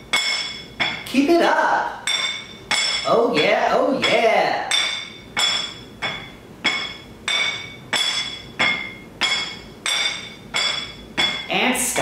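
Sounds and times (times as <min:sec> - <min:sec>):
spatula tapping a plate: 0:02.0 - 0:11.5.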